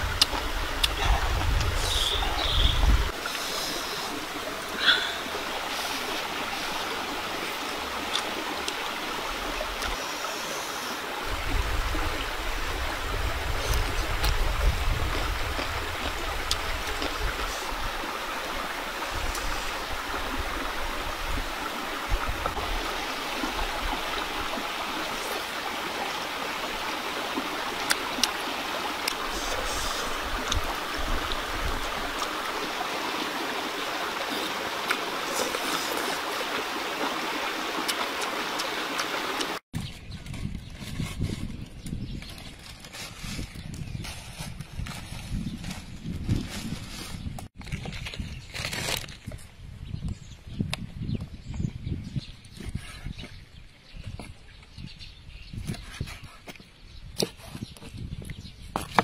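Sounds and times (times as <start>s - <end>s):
running water rushing: 0.0s - 39.6s.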